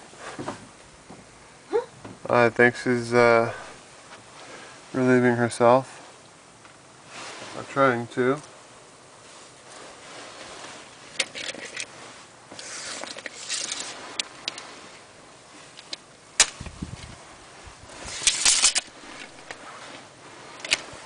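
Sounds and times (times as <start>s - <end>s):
rustling and scraping: 0.0s - 1.4s, 2.0s - 21.0s.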